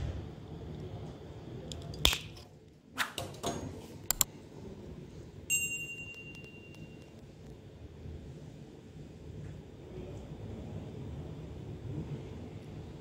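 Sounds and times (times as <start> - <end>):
bright ringing bell chime: 5.5 - 7.2.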